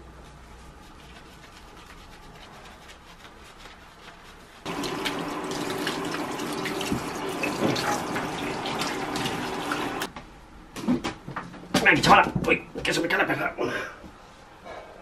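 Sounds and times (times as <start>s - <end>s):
shower head spraying water: 4.7s - 10.1s.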